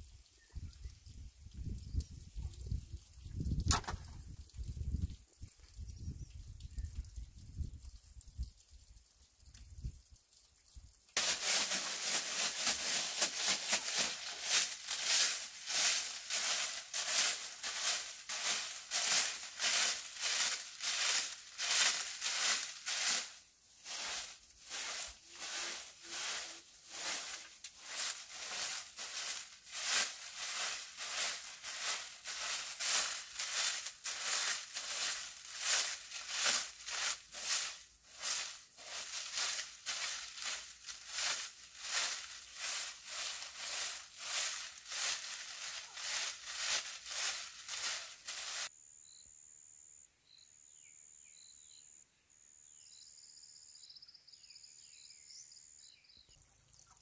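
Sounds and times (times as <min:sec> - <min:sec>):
hand tool scraping: 0:11.2 - 0:48.7.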